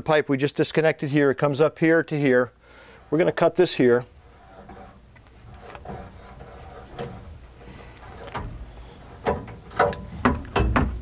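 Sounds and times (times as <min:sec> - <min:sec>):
tubing cutter scraping copper pipe: 0:02.8 - 0:10.7.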